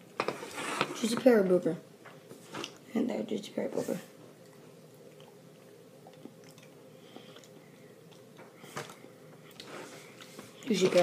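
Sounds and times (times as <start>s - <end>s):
low room hum: 0.0s - 11.0s
faint chewing: 4.4s - 10.7s.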